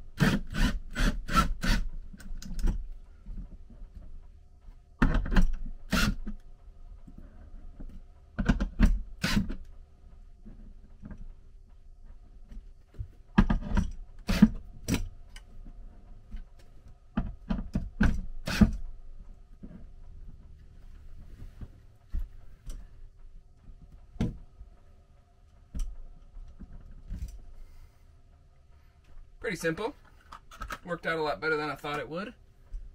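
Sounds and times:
cordless drill driving screws: 9.2s - 9.5s.

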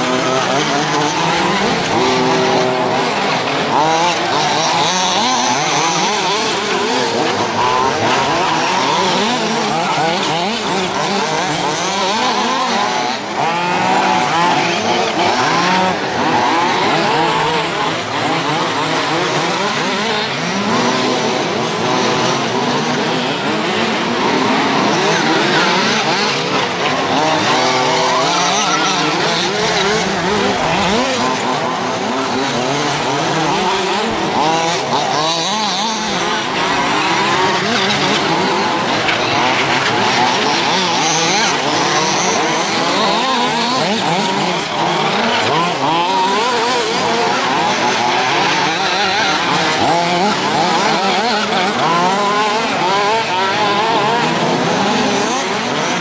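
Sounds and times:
small two-stroke engines revving: 0.0s - 56.0s.

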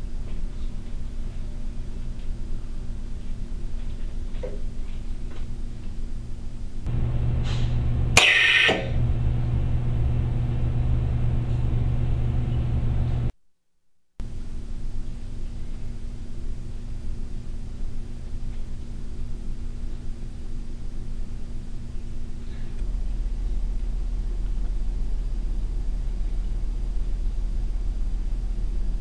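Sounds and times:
vacuum pump humming: 6.8s - 13.3s, 14.2s - 29.0s
compressed air hiss: 7.4s - 9.0s.

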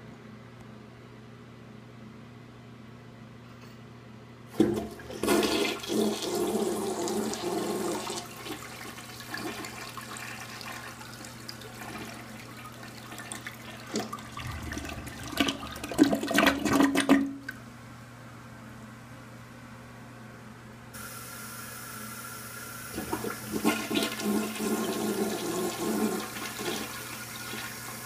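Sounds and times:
toilet flushing: 4.5s - 17.6s, 21.0s - 28.0s
siphon gurgling: 10.7s - 17.6s.

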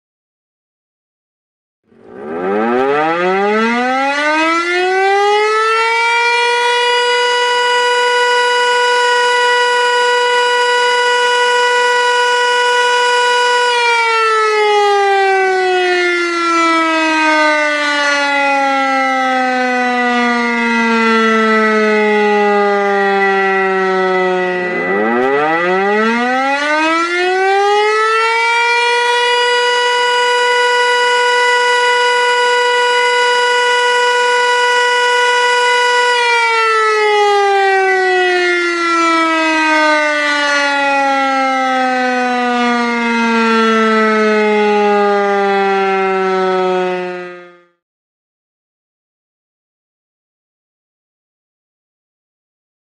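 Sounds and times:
steady high tone: 1.9s - 4.5s, 21.0s - 27.9s
siren wailing: 1.9s - 47.8s.

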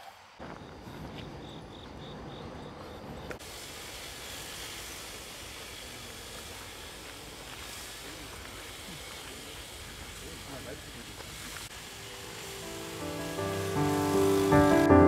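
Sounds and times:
outdoor noise hiss: 0.0s - 15.0s
insect chirping in high pulses: 0.4s - 4.8s, 11.7s - 14.9s.

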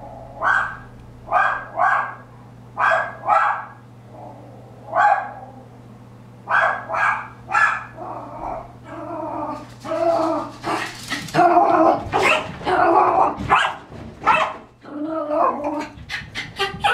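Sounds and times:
small dog barking: 0.4s - 3.8s, 4.9s - 5.4s, 6.5s - 8.0s, 13.4s - 14.7s.

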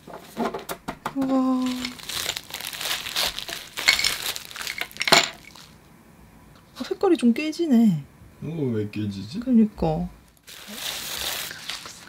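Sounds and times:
sharp plastic crackle: 1.2s - 5.8s, 10.3s - 12.0s
bubble wrap crinkling: 1.3s - 5.8s, 10.3s - 12.0s.

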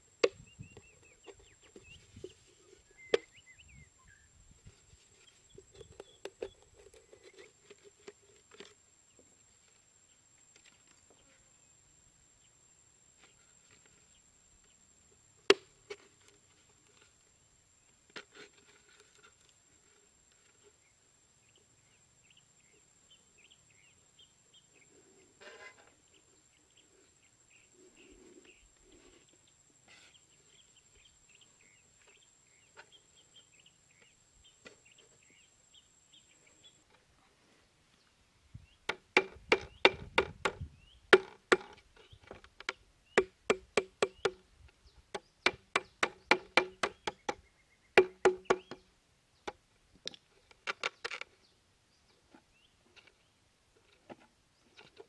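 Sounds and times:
hatchet hammering wire into ground: 38.9s - 40.6s, 41.2s - 41.8s, 43.2s - 44.4s, 45.2s - 47.4s, 48.0s - 48.8s.

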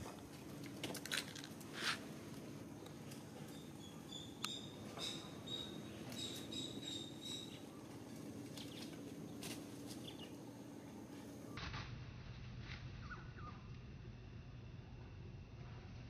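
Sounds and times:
low steady hum: 0.0s - 16.0s
short high chirping calls: 3.5s - 7.6s.

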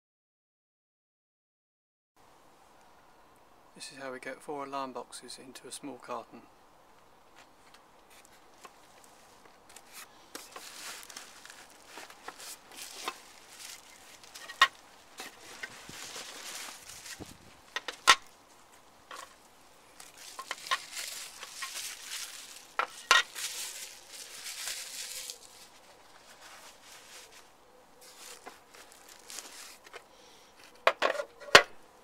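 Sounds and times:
bubble wrap crinkling: 8.2s - 30.0s.

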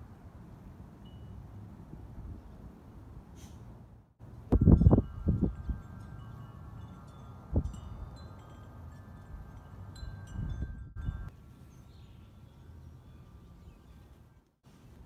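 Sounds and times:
wind chimes ringing: 4.5s - 14.4s.

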